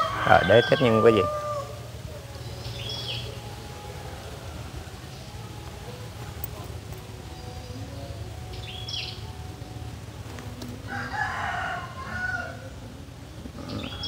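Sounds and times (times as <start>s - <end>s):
rooster crowing: 0.0s - 2.0s, 10.8s - 12.8s.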